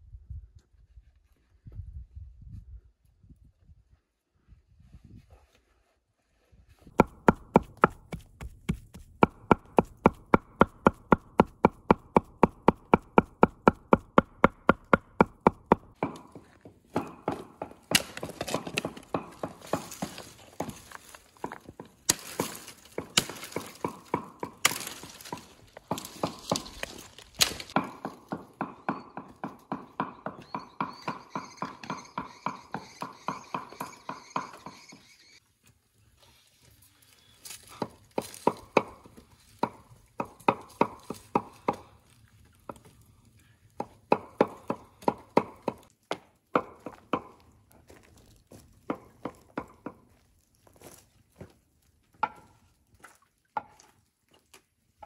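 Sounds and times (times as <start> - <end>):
hatchet chopping firewood: 6.9 - 34.9, 37.5 - 42.0, 43.7 - 47.6, 48.6 - 50.3, 52.1 - 52.6, 53.6 - 54.0
wood splitting cracks: 17.0 - 28.7.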